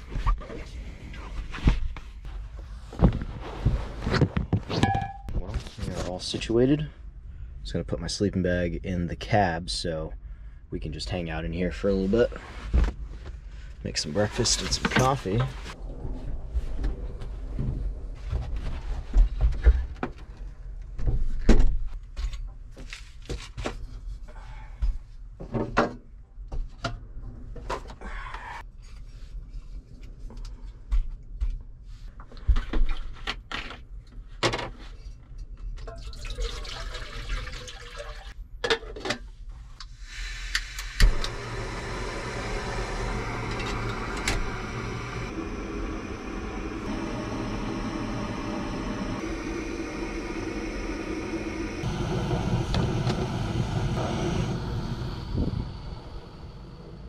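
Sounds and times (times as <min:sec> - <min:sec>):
water being poured: 0:35.9 - 0:38.4
steady rushing hiss: 0:40.4 - 0:57.0.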